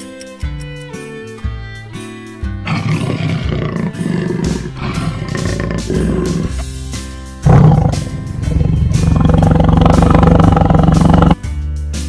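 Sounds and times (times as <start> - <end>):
background music: 0.0 - 12.0
lion roaring: 2.7 - 6.6, 7.4 - 11.4.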